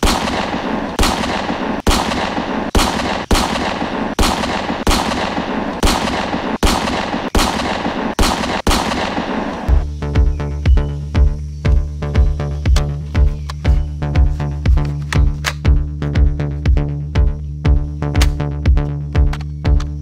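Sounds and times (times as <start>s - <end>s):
echoing gunshots: 0.0s - 9.8s.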